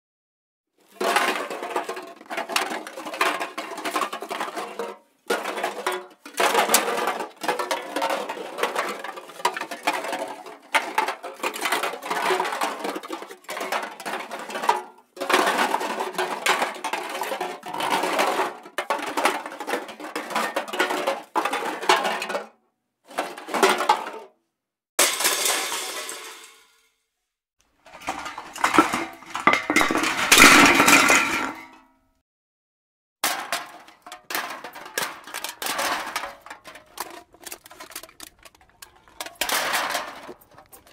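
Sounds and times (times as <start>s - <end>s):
metal cans clattering: 0.8s - 24.3s, 25.0s - 26.8s, 27.8s - 31.9s, 33.2s - 40.9s.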